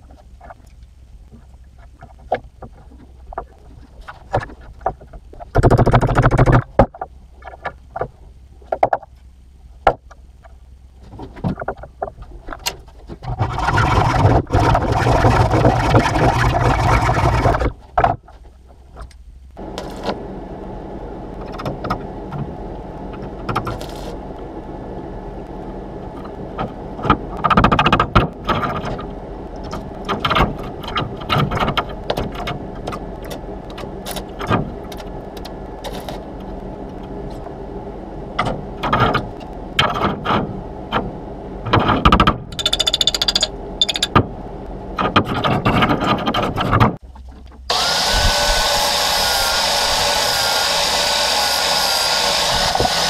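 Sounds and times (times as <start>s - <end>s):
crackling and scraping metal: 0.0s - 53.0s
steady hum: 0.0s - 53.0s
grinder on metal: 47.7s - 53.0s.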